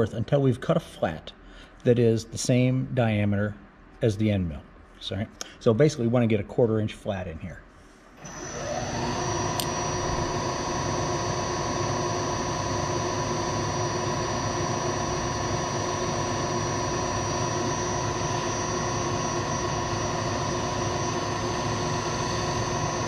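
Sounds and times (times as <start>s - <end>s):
milling machine motor whine: 8.2s - 23.0s.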